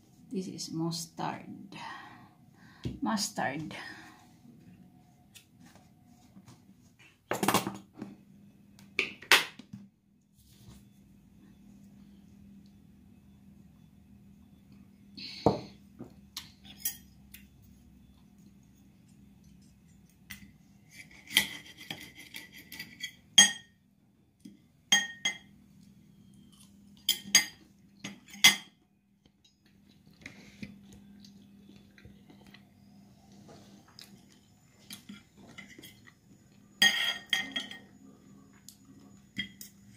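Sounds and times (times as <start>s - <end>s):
faint low hum: 0.0s - 9.0s, 9.7s - 39.9s
cutlery clinking on a plate: 24.9s - 25.5s, 27.0s - 28.8s, 36.8s - 37.9s, 39.3s - 39.9s.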